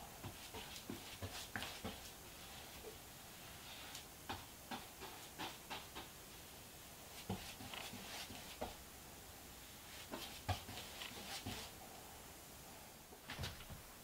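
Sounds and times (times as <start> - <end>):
paintbrush strokes on wall: 0.2 - 8.8, 9.5 - 11.9.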